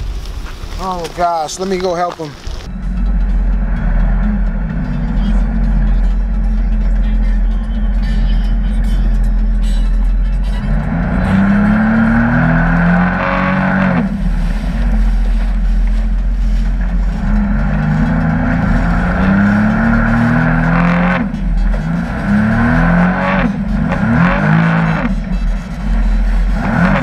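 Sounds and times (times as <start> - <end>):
jet ski engine running: 13.7 - 27.0.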